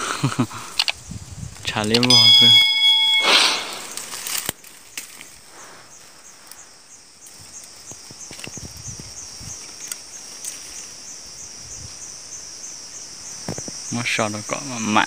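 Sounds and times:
insect chirping: 0:00.0 - 0:15.0
twigs and leaves rustling: 0:00.5 - 0:11.6.

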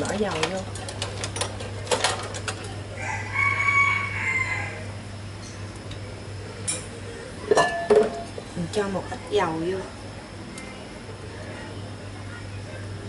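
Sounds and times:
rooster crowing: 0:03.0 - 0:05.0.

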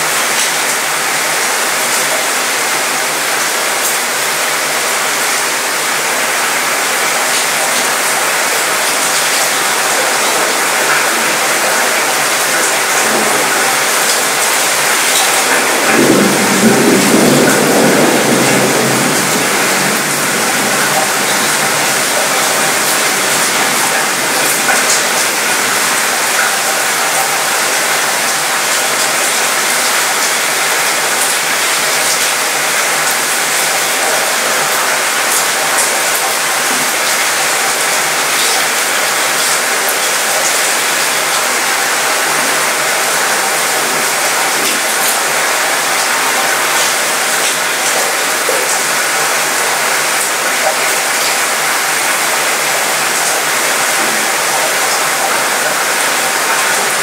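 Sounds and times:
rain on metal balcony: 0:00.0 - 0:57.0.

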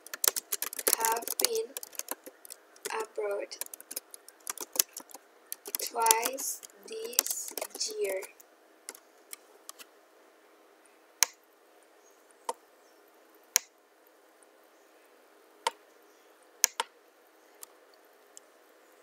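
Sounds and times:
computer mouse clicks: 0:00.0 - 0:09.8, 0:16.6 - 0:16.9.

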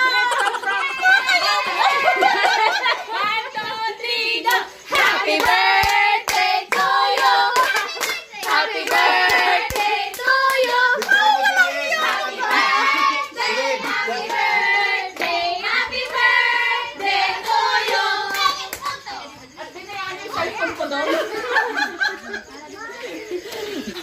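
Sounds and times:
group of voices singing: 0:01.5 - 0:18.8
hand claps: 0:04.5 - 0:13.0.

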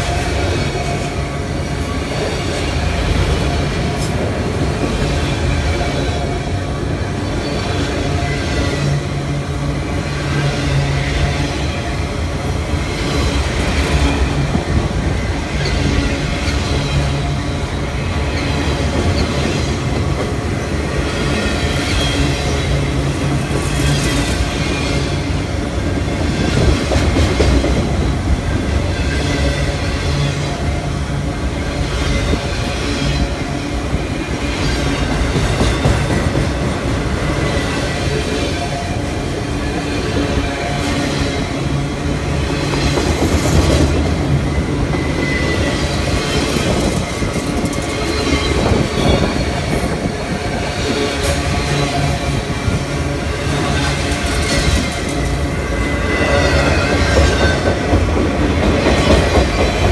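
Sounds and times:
freight train cars rolling past: 0:00.0 - 0:59.9
clickety-clack over rail joints: 0:12.6 - 0:30.8, 0:31.7 - 0:59.9.

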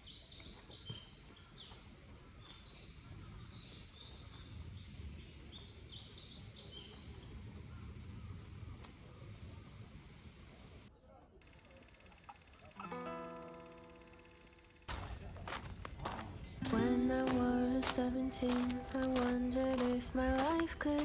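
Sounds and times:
small birds chirping: 0:00.0 - 0:10.6, 0:15.5 - 0:21.0.

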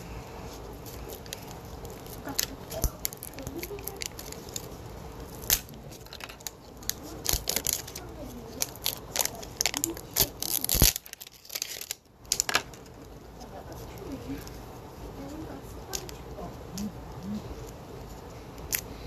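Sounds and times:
wrapper crinkling and tearing: 0:00.8 - 0:14.5.

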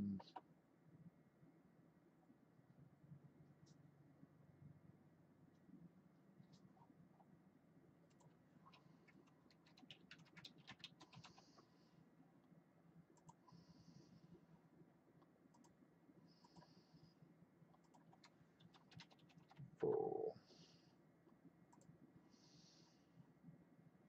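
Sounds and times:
keyboard typing: 0:08.1 - 0:11.6, 0:17.7 - 0:20.3
mouse clicks: 0:13.2 - 0:13.5, 0:15.5 - 0:15.8, 0:21.7 - 0:22.0.

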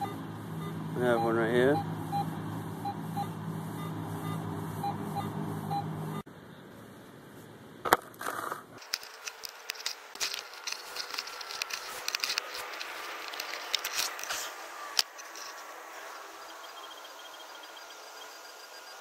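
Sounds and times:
blade cutting through turf: 0:07.9 - 0:16.5.

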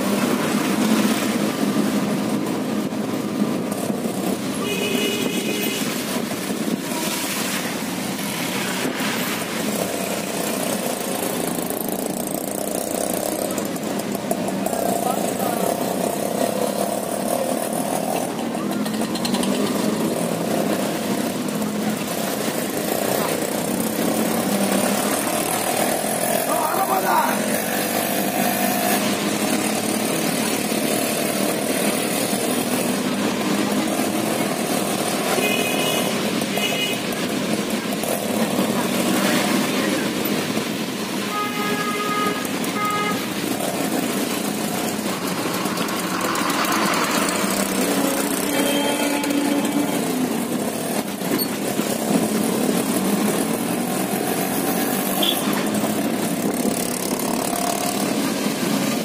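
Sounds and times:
auto-rickshaw engine running: 0:00.0 - 0:07.0, 0:07.6 - 0:59.0
rain and tyres on wet road: 0:00.0 - 0:59.0
vehicle horns beeping: 0:04.6 - 0:06.0, 0:35.4 - 0:37.1, 0:41.3 - 0:43.3, 0:48.4 - 0:50.1, 0:55.2 - 0:55.6.

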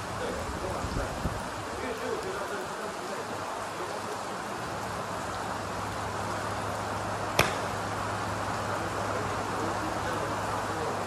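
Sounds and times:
steady rain: 0:00.0 - 0:11.0
golf club striking ball: 0:07.4 - 0:07.9.

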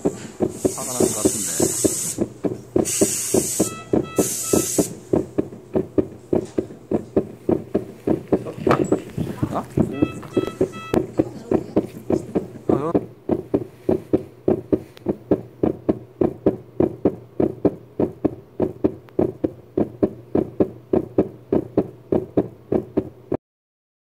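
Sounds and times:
background music with percussive beat: 0:03.4 - 0:05.5, 0:09.6 - 0:11.1.

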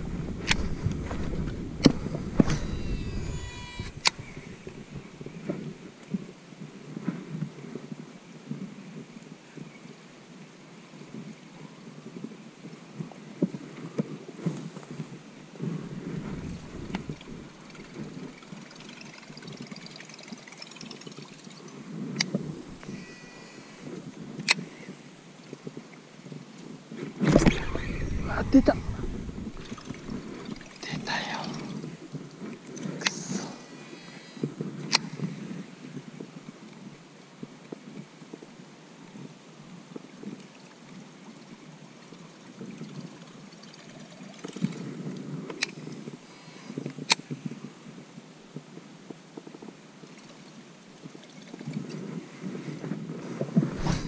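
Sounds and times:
microphone handling noise: 0:00.0 - 0:05.8, 0:15.6 - 0:18.4, 0:22.2 - 0:24.9, 0:27.0 - 0:35.6, 0:53.4 - 0:54.0
wind rustling: 0:00.0 - 0:06.0, 0:14.6 - 0:25.7, 0:27.0 - 0:37.0, 0:53.5 - 0:54.0
fishing reel ticking: 0:00.3 - 0:05.4, 0:15.9 - 0:21.6, 0:22.2 - 0:24.7.

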